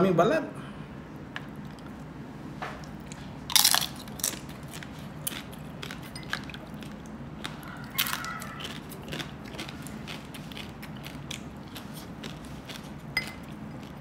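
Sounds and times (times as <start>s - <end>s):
chewing: 1.4s - 2.1s, 2.7s - 14.0s
crispy skin crunching: 2.8s - 14.0s.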